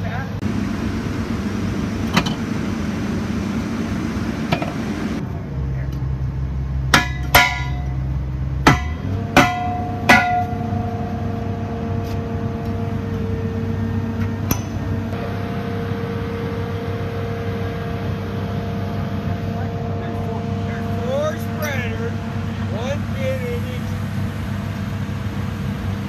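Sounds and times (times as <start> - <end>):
metal-on-metal clanks: 6.9 - 8.0, 8.6 - 11.1
steel ringing tone: 8.8 - 24.0.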